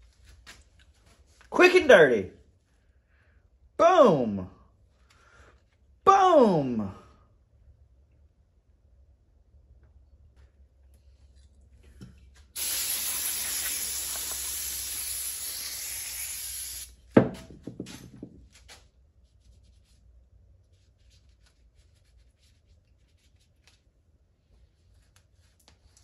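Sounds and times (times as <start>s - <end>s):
aerosol can spraying hiss: 12.6s - 17.0s.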